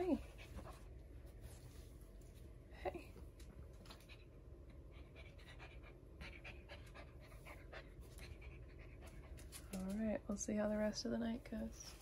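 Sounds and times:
low steady hum: 0.0 - 12.0
puppy panting: 3.8 - 9.6.

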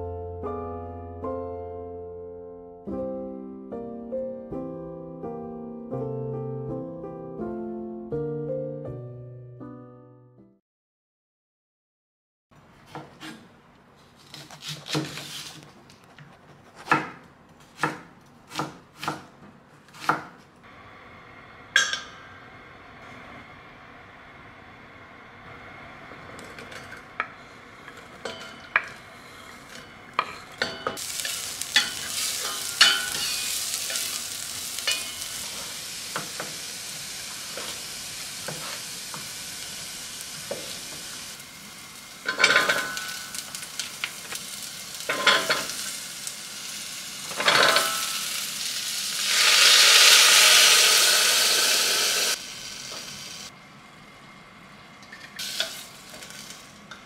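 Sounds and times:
food sizzling in a pot: 27.4 - 53.5, 55.4 - 56.9
loud rushing hiss: 49.0 - 53.5.

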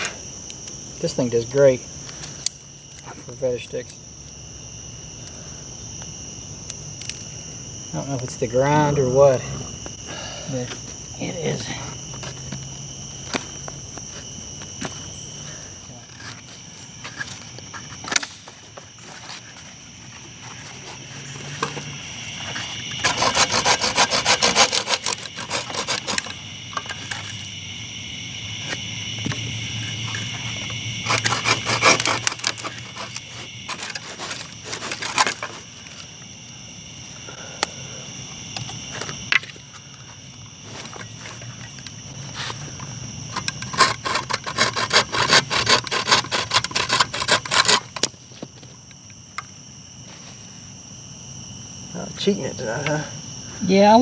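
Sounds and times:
insects chirping: 0.0 - 54.0
knife scraping wooden stick: 22.5 - 27.4, 31.0 - 35.6, 43.3 - 48.1.

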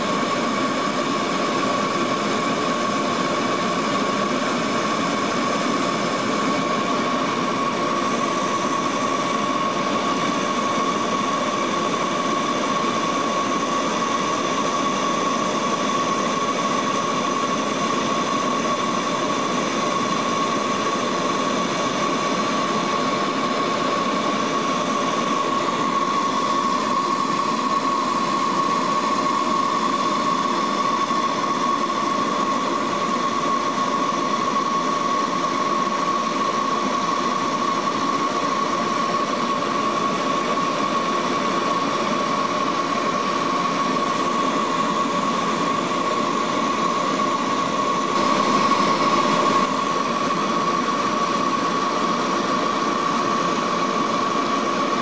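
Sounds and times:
turboprop engines droning: 0.0 - 55.0
high whine: 47.0 - 51.9.

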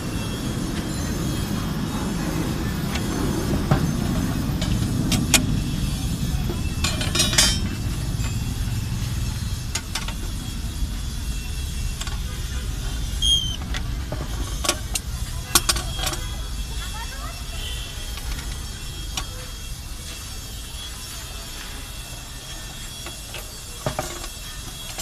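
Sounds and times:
low rumble: 1.4 - 18.9.

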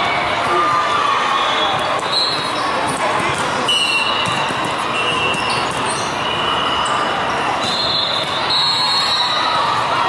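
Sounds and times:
chatter and calls of people: 0.0 - 10.0
shoe squeals: 1.5 - 3.0, 3.6 - 9.7.

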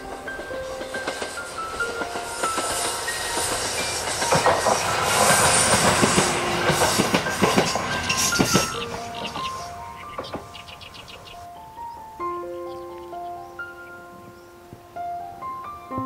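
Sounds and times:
wheels clacking over rail joints: 0.0 - 11.4
diesel railcar engine passing: 0.0 - 11.8.

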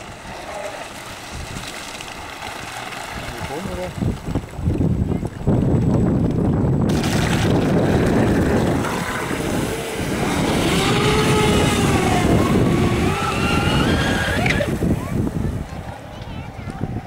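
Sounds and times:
electric motors whining: 7.7 - 14.9.

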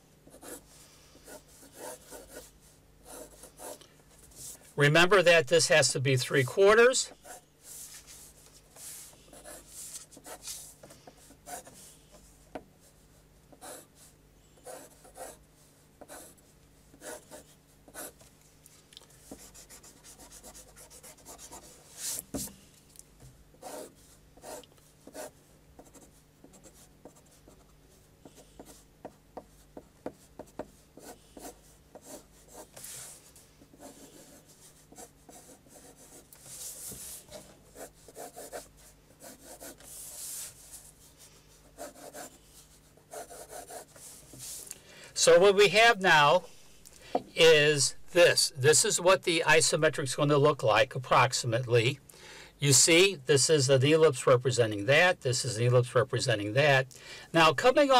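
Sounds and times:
pencil scratching on paper: 0.2 - 4.6, 6.6 - 11.9, 13.5 - 18.2, 19.2 - 22.5, 23.6 - 40.9, 41.6 - 44.6.

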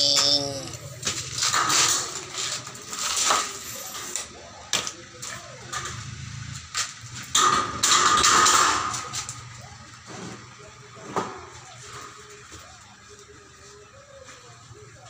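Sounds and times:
metal window frames clattering: 7.1 - 9.4.

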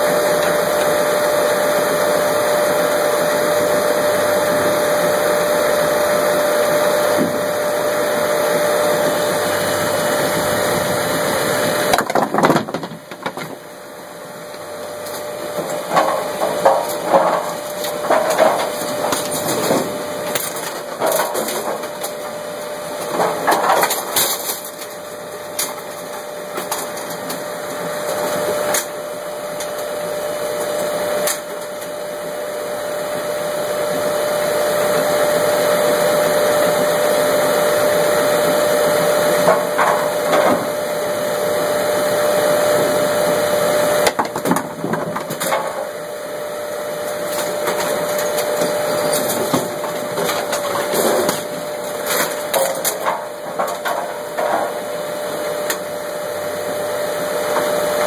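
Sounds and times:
machine drone with whine: 0.0 - 58.0
knocks and clatters of pins: 11.9 - 13.6, 23.0 - 24.9, 44.0 - 45.9, 47.2 - 54.8.

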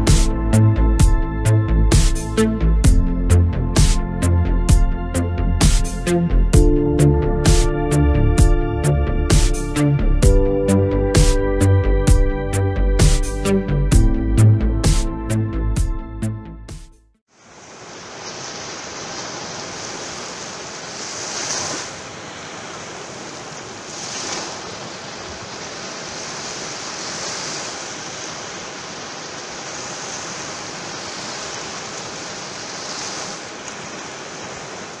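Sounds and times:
waves breaking on sandy shore: 17.3 - 35.0.

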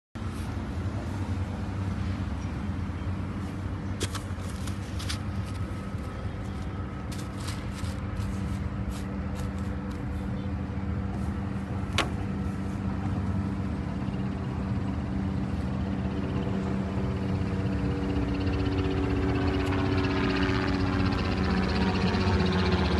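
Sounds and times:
road traffic hum: 0.2 - 22.9.

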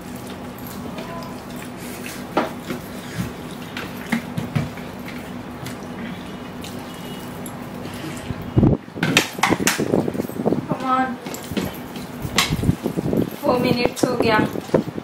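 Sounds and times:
chewing and slurping noodles: 0.0 - 8.6.

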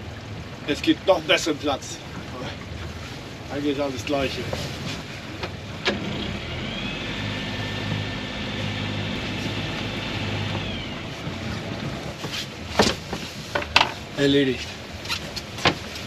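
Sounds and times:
anchor windlass motor whine: 5.2 - 13.1.

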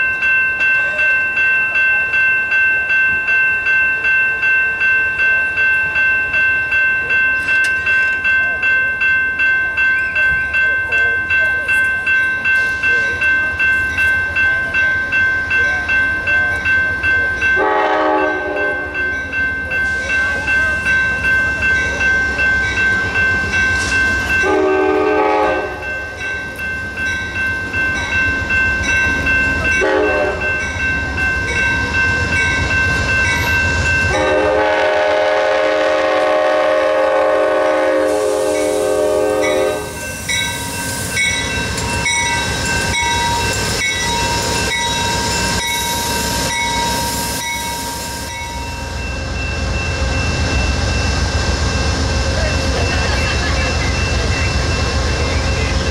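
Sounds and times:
bell ringing steadily: 0.0 - 55.9
locomotive horn blasts: 17.6 - 19.0, 24.4 - 25.8, 29.8 - 30.5, 34.1 - 40.0.

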